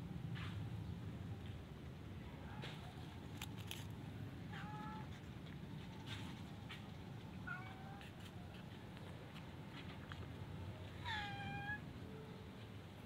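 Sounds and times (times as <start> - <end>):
cat meowing: 11.0 - 11.8.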